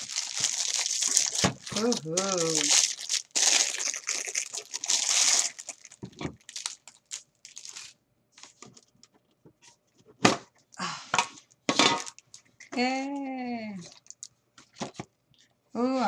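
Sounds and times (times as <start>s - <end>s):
cellophane crinkling and tearing: 0.0s - 9.0s, 13.8s - 14.3s.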